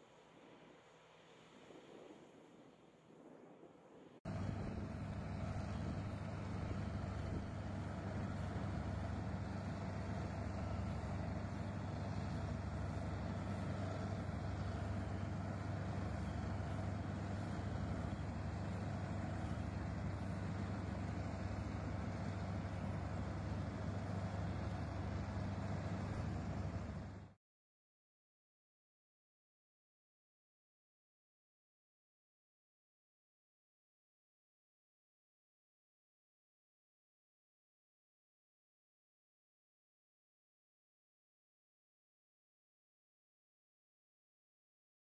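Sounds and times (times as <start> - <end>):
heavy machine engine droning: 4.3 - 27.4.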